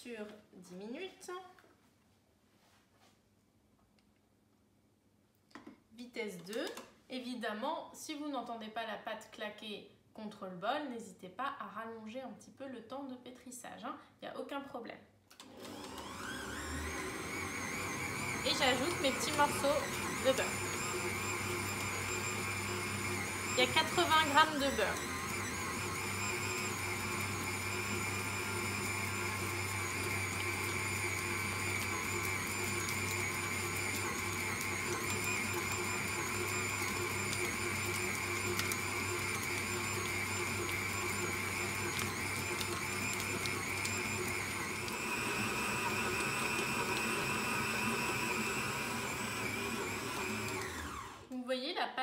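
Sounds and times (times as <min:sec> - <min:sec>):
stand mixer motor whine: 0:15.4 - 0:51.3.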